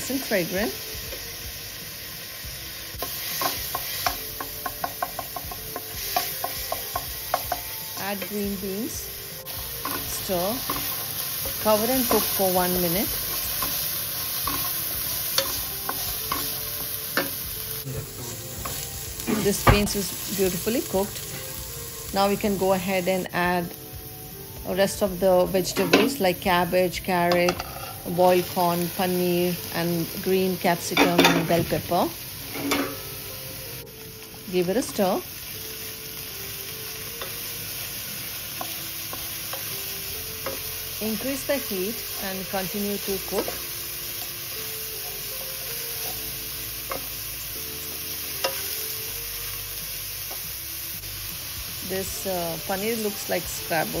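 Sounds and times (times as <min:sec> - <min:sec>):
vegetables sizzling in oil: 0:00.0 - 0:54.0
spatula scraping and knocking pan: 0:03.1 - 0:08.4
spatula tapping pan: 0:03.4 - 0:08.4, 0:13.2 - 0:17.4, 0:40.4 - 0:40.8, 0:46.8 - 0:47.2, 0:48.4 - 0:48.7.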